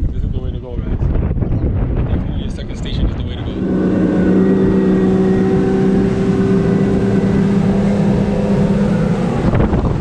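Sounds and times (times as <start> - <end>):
wind: 0.0 - 10.0
water rushing along hull: 1.8 - 10.0
boat outboard engines cruising: 2.6 - 10.0.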